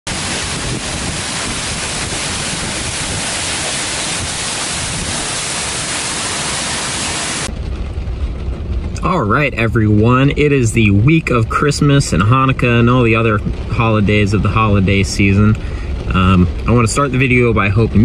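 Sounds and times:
waterfall rushing onto rocks: 0.0 - 7.6
low rumble: 0.1 - 18.0.

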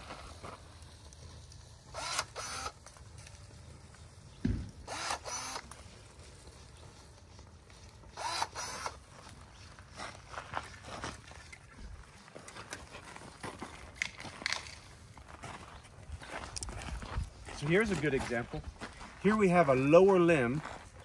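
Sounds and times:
pruning shears motor whir: 1.9 - 2.9, 4.4 - 5.9, 8.1 - 9.2.

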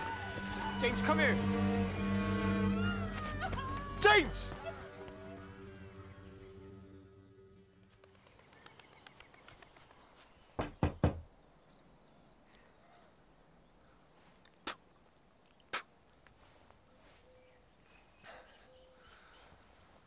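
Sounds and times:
knocking on a door: 10.6 - 11.3.

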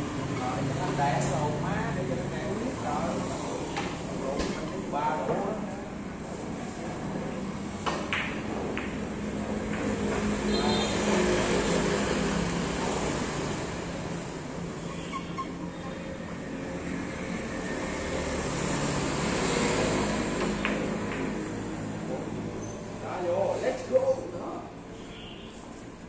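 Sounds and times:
billiard balls clicking: 7.9 - 10.3, 20.5 - 21.4.

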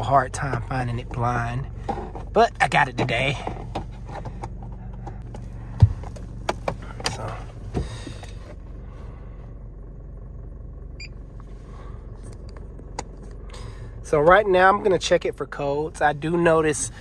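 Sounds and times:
car engine humming: 0.0 - 17.0.

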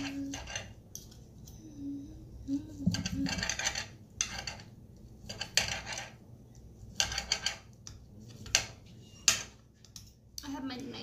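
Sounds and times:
knife scraping against plate: 0.0 - 0.8, 2.7 - 6.2.

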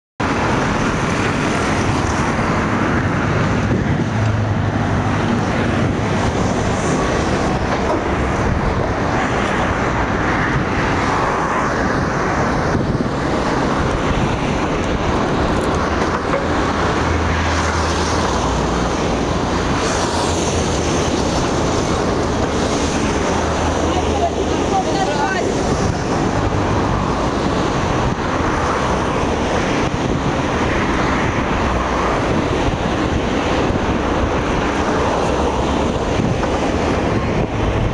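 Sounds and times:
passing cars and motorbikes: 0.2 - 37.9
wind rushing over microphone: 0.2 - 37.9.

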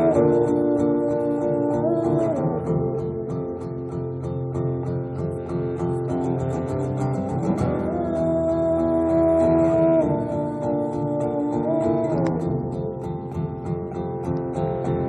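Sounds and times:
sliding sustained melodic note: 0.0 - 3.6, 7.5 - 12.7
acoustic guitar strumming: 0.0 - 15.0.

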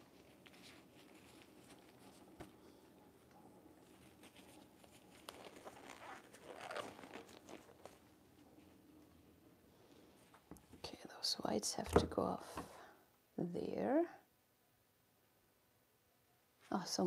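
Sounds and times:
rustling: 0.0 - 10.9.

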